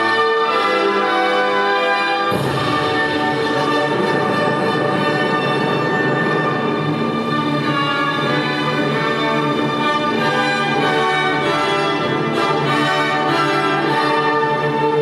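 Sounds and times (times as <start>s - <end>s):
orchestral music with held chords: 0.0s - 15.0s.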